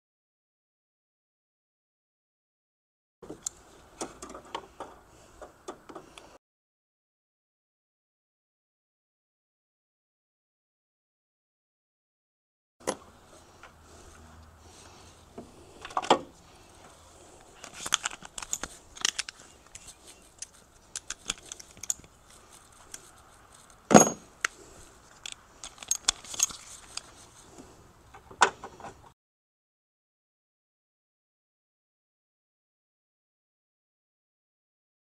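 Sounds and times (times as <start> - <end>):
metallic clinks of tools and bolts: 17.5 - 27.2.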